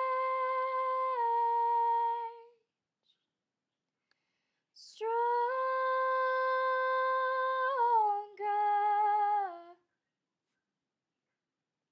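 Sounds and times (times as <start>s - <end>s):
breath: 4.0s - 4.8s.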